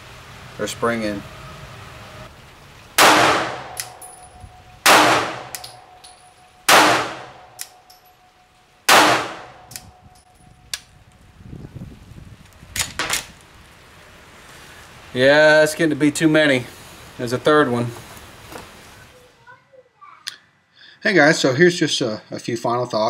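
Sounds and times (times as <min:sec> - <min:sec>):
pistol shots: 0:03.0 - 0:06.0, 0:06.7 - 0:07.8, 0:08.9 - 0:09.8.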